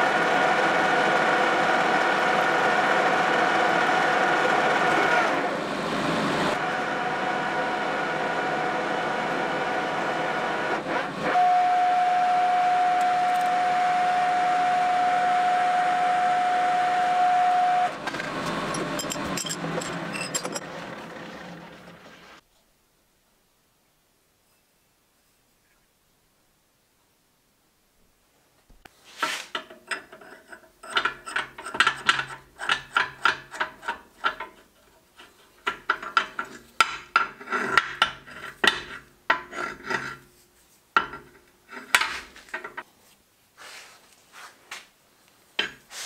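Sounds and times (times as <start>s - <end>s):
gear whine: 6.5s - 22.4s
metal lathe running: 12.9s - 22.1s.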